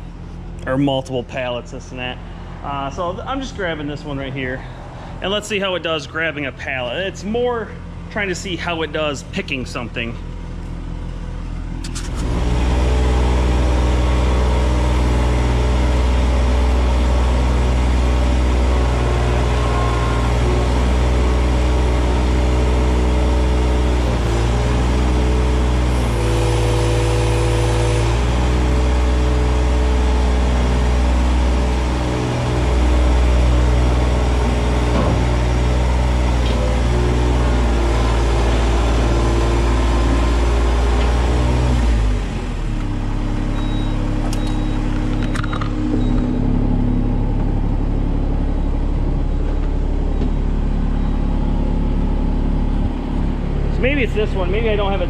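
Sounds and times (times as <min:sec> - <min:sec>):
skid steer engine running: 0:00.0 - 0:55.0.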